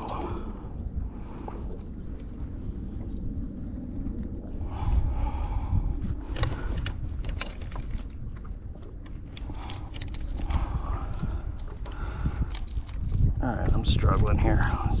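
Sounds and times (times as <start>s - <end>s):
low wind rumble on microphone: 0.0s - 15.0s
fishing hooks rattling: 9.4s - 13.4s.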